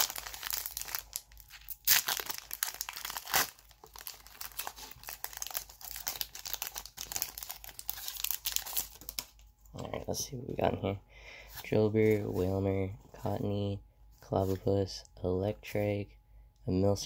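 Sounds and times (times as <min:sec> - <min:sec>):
foil wrapper ripping: 0:00.0 - 0:09.3
foil wrapper crinkling: 0:00.0 - 0:09.4.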